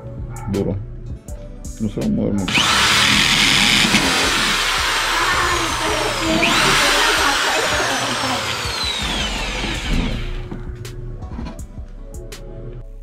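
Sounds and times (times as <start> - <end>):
electric drill boring through wood: 2.5 - 10.6.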